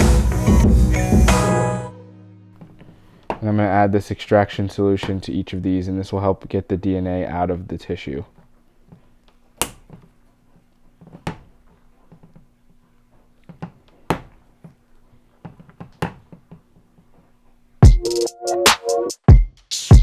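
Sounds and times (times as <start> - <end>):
electronic music with heavy drums: 0.0 - 1.9, 17.8 - 20.0.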